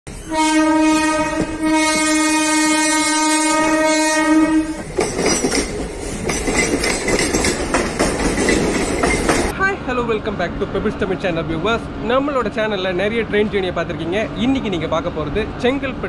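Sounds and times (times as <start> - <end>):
train horn blast: 0.2 - 4.8
train wheels clattering over rails: 4.7 - 9.6.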